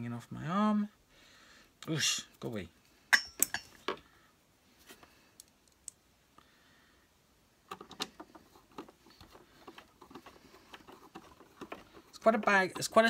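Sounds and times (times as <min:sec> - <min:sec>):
plastic parts clicking and knocking: 0:07.6 - 0:13.0.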